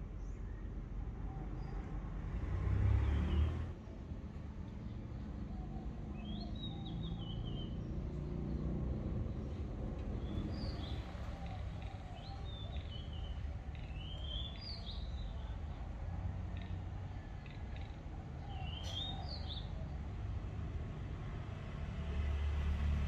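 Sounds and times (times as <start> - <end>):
birds chirping: 9.3 - 15.8, 16.5 - 19.9.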